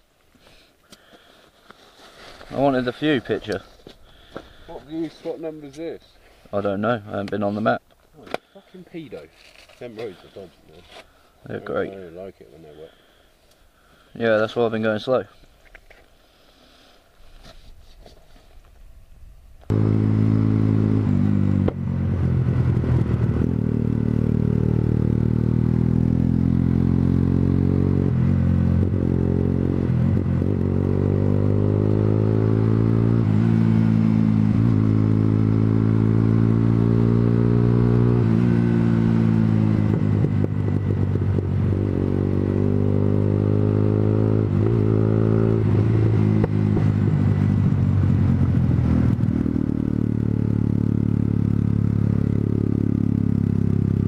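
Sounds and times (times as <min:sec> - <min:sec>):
motorcycle engine shifting gears: 0:19.7 - 0:54.0.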